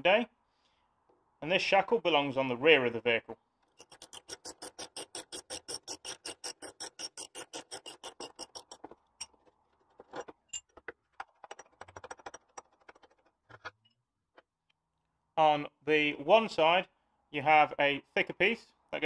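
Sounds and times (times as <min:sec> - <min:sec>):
metallic clicks and knocks: 0:07.7 - 0:14.5.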